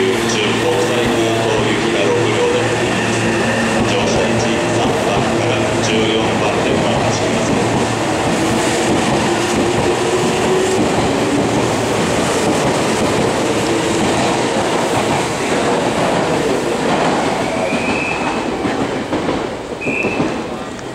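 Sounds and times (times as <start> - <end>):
clattering train wheels: 0.0 - 20.9
electric train rumbling past: 0.0 - 20.9
high squeal: 2.4 - 4.0.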